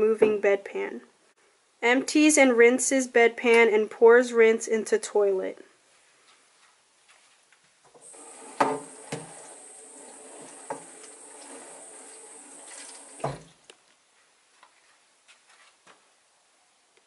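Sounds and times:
tap water running: 0:08.0 - 0:13.5.

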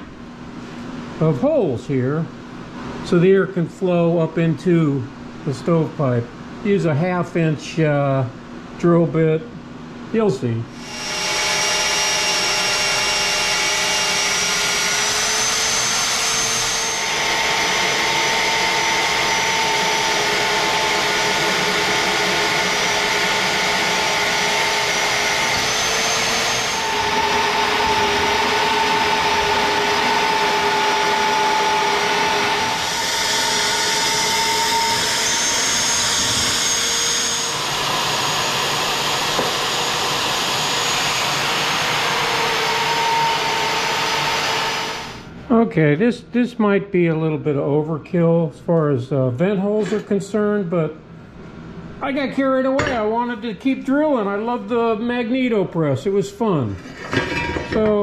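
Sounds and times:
drill press motor whining: 0:10.8 - 0:45.3.

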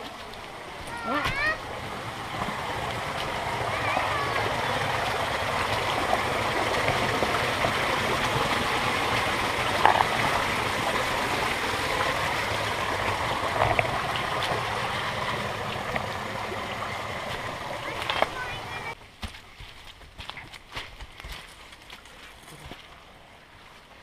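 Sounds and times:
waterfall pouring into pool: 0:00.0 - 0:19.0.

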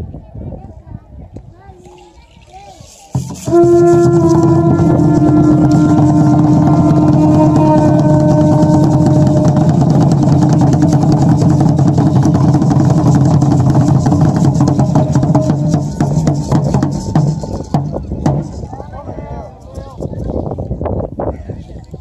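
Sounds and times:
conch-shell trumpets holding notes: 0:03.1 - 0:17.8
drum beats: 0:03.1 - 0:18.8.

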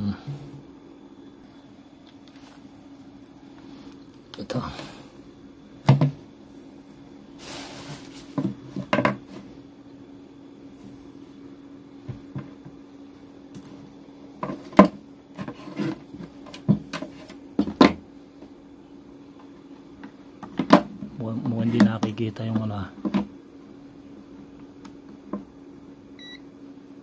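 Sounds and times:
faint low hum: 0:18.1 - 0:27.0.

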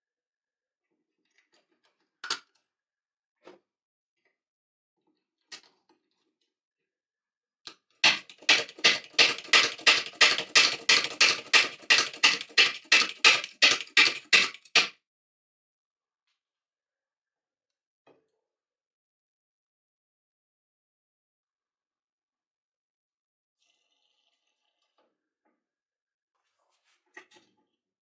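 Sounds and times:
hydraulic jack pumping clicks: 0:08.0 - 0:14.9.

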